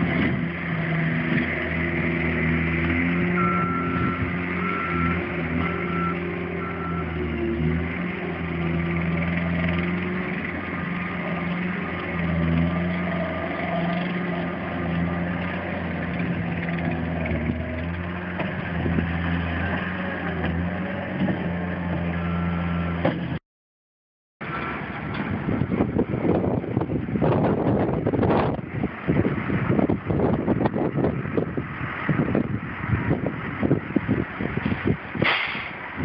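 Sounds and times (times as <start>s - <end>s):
loader diesel engine working: 0.0s - 23.4s, 24.4s - 36.0s
reversing alarm beeping: 3.3s - 7.2s, 22.2s - 23.0s.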